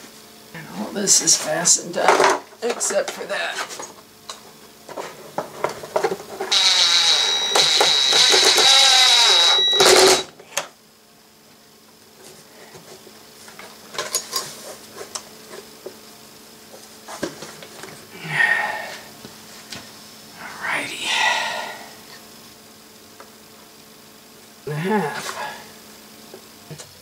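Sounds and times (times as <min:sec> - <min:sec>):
electric power driver running: 0:06.5 - 0:10.3.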